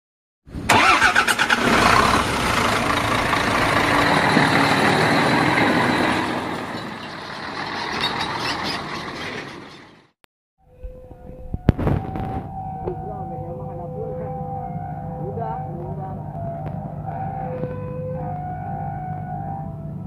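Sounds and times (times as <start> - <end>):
heavy diesel trucks driving past: 0.8 - 10.2.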